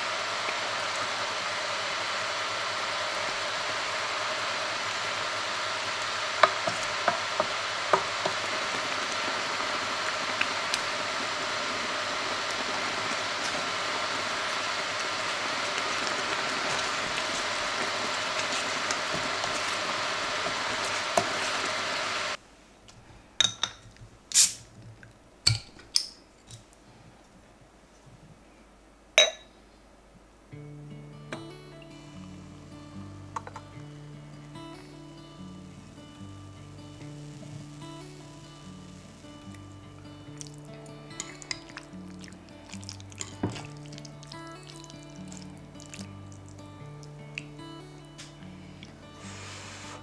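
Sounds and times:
sauce hissing in a pan: 0.0s - 22.4s, 24.3s - 24.7s, 31.4s - 50.0s
wooden spoon knocking on pan: 6.4s - 8.9s
bottle and glass clinking: 23.4s - 23.9s, 29.2s - 29.5s.

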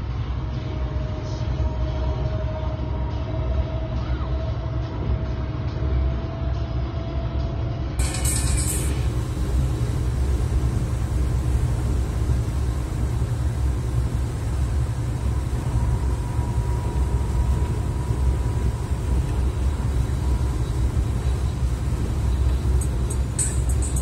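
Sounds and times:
engine rumble: 8.0s - 24.0s.

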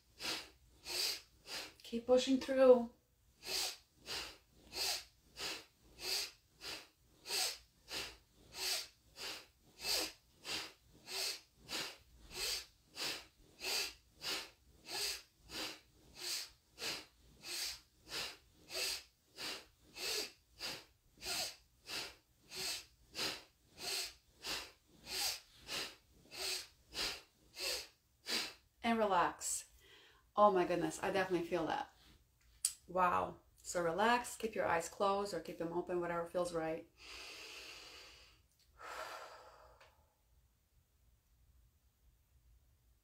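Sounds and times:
person breathing fast through the nose: 0.0s - 1.8s, 3.4s - 28.6s, 29.8s - 30.3s, 37.0s - 40.0s.

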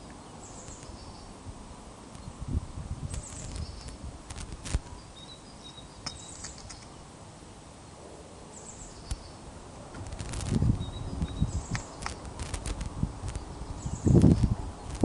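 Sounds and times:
outdoor hiss: 0.0s - 15.0s
high bird chirps: 5.0s - 6.9s, 10.7s - 12.2s
sharp clicks and snaps: 6.0s - 6.9s, 11.6s - 13.5s.

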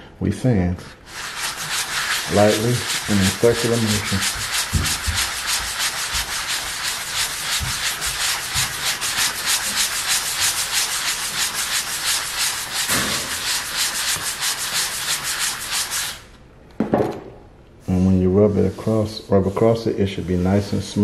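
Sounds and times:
sanding pad scratching wood: 1.1s - 16.2s.

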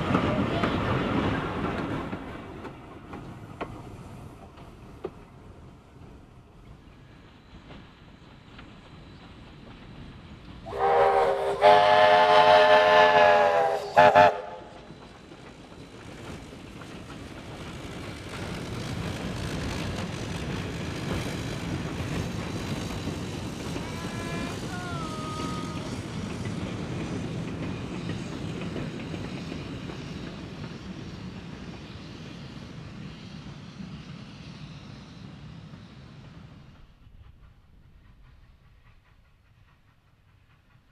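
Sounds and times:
train running past: 0.0s - 40.9s
steam whistle blasts: 10.7s - 14.7s.

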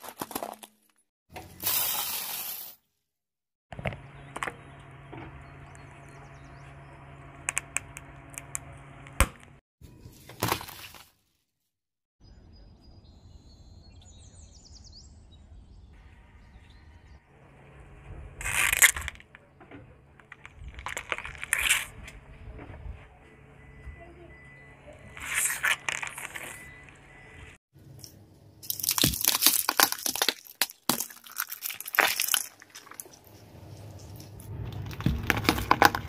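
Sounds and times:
low steady hum: 16.0s - 25.2s
plastic toy crushed by tyre: 18.4s - 19.3s, 28.6s - 33.2s, 34.7s - 36.0s
plastic pens cracking under tyre: 18.4s - 19.4s, 20.2s - 21.9s, 28.6s - 33.4s, 34.7s - 36.0s.

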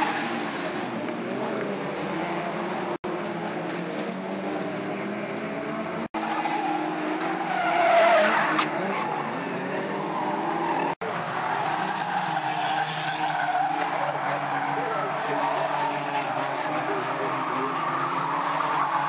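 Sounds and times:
race car engines revving: 0.0s - 19.0s
tyres squealing and skidding: 6.1s - 19.0s.

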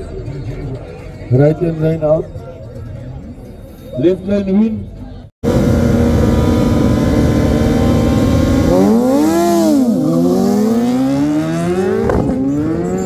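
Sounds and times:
motorcycle engine revving: 5.4s - 13.0s.

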